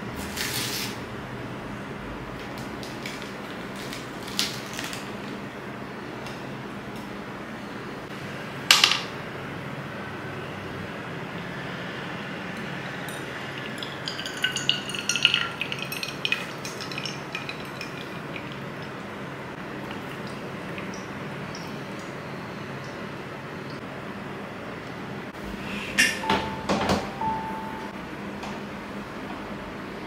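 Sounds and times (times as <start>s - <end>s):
water pouring from kettle: 13.0s - 19.0s.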